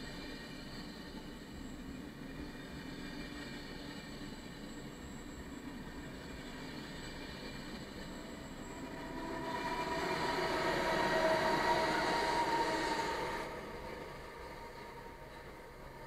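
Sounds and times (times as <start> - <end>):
faint steady whine: 0.0 - 16.0
passenger train passing: 0.0 - 16.0.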